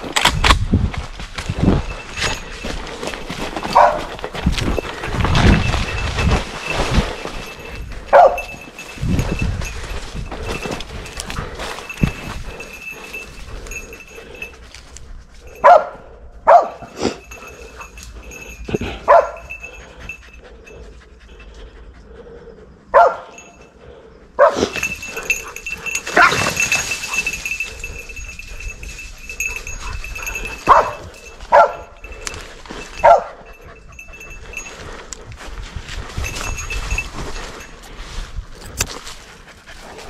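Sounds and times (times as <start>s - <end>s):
dogs barking: 3.7s - 4.2s, 8.0s - 8.7s, 15.5s - 21.2s, 22.8s - 23.7s, 24.3s - 28.2s, 29.4s - 32.2s, 32.9s - 34.7s.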